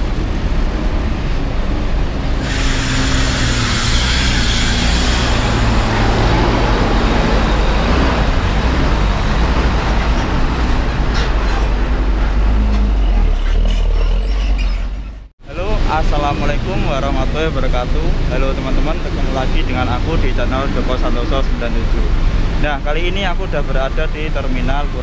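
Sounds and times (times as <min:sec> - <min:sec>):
bus diesel engines rumbling: 0:00.0 - 0:25.0
compressed air hiss: 0:02.4 - 0:06.3.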